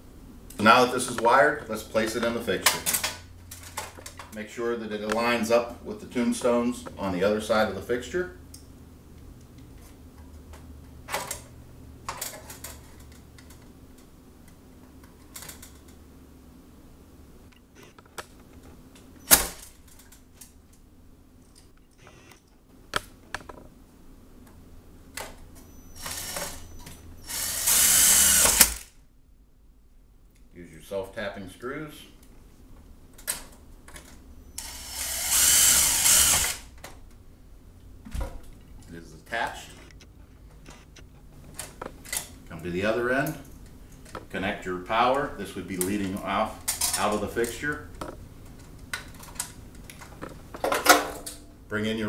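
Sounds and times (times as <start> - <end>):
steady low hum: 0.0 - 52.0
cordless drill driving screw: 25.8 - 28.9, 34.6 - 36.7.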